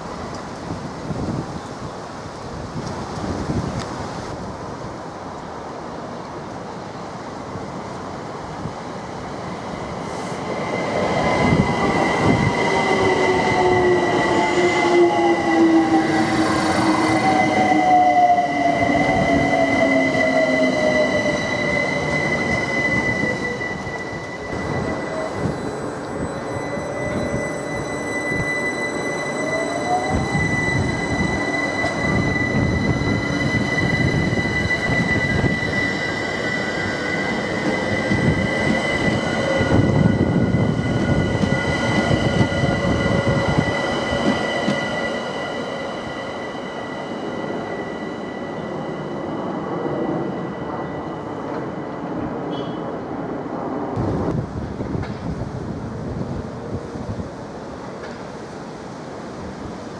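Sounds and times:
high steady squeal: 0:10.4 - 0:51.4.

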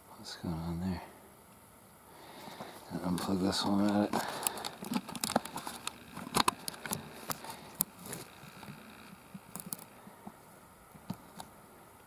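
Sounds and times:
faint steady hiss: 0:00.0 - 0:12.0
camera handling clicks and taps: 0:03.8 - 0:07.9.

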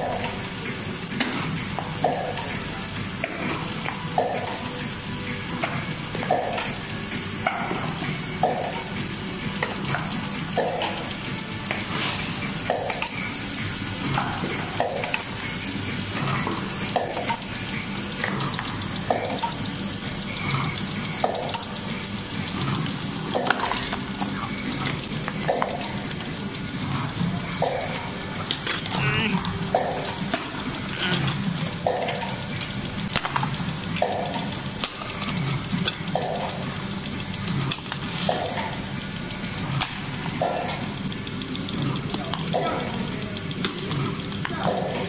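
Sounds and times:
machine hiss: 0:00.0 - 0:45.0
machine clacks: 0:09.6 - 0:45.0.

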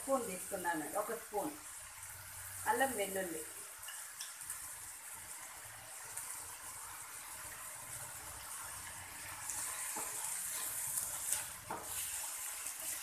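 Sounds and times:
food sizzling in oil: 0:00.0 - 0:13.0
wooden spatula scraping pan: 0:09.8 - 0:13.0.

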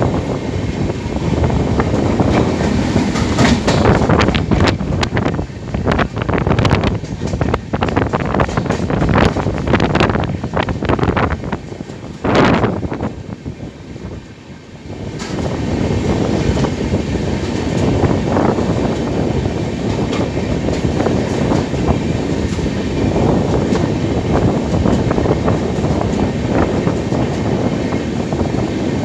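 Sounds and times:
rail clicks: 0:00.0 - 0:29.0
train wheel and rail noise: 0:00.0 - 0:29.0.

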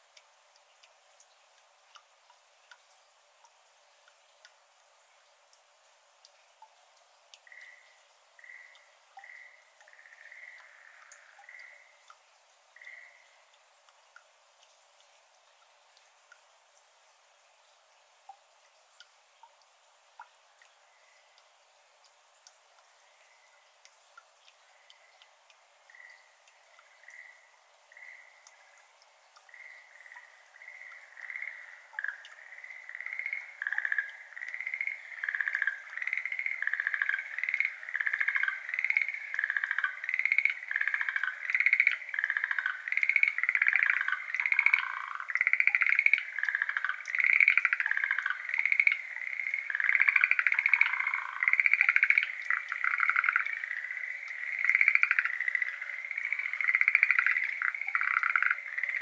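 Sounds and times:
tree frogs calling in chorus: 0:07.4 - 0:12.0, 0:12.8 - 0:13.4, 0:25.9 - 0:59.0.

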